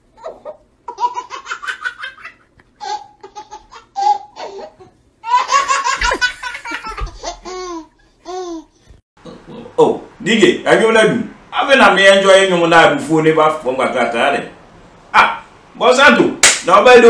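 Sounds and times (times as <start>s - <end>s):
baby giggling: 0.2s - 8.7s.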